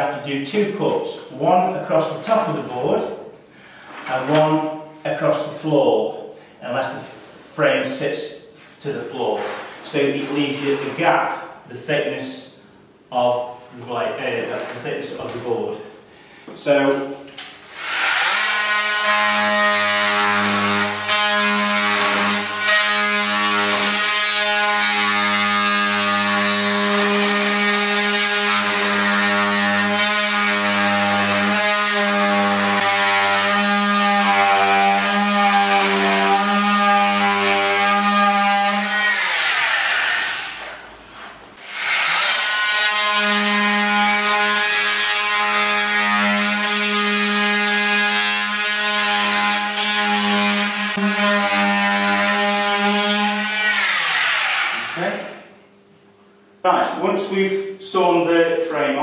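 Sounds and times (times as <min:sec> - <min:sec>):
oscillating multi-tool cutting wood: 0:17.7 - 0:40.8, 0:41.6 - 0:55.1.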